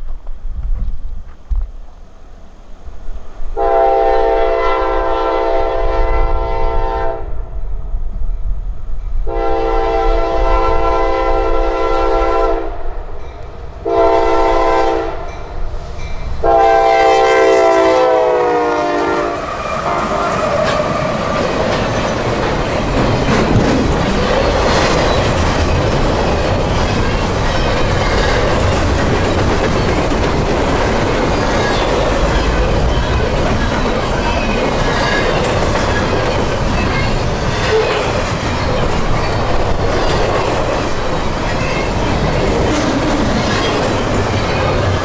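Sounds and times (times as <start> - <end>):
locomotive air horn blasts: 3.6 - 7.3, 9.3 - 12.8, 13.8 - 15.3, 16.4 - 20.4
freight cars rumbling and clacking: 19.5 - 45.0.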